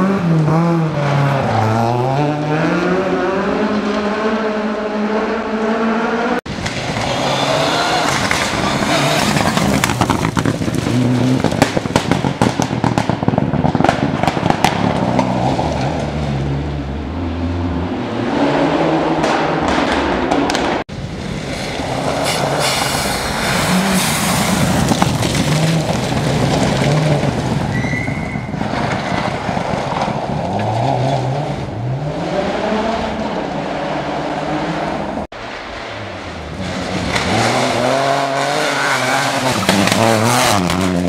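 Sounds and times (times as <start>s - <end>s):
rally car engine accelerating: 0.0s - 12.4s, 28.5s - 41.0s
gravel crackling and pelting: 6.5s - 16.7s, 20.0s - 32.0s
tyres hissing on gravel: 22.2s - 24.9s.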